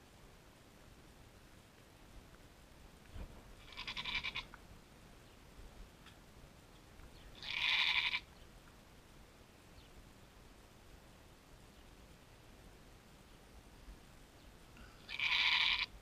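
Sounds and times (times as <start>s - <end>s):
goat bleating: 3.6s - 4.5s, 7.4s - 8.3s, 15.1s - 15.9s.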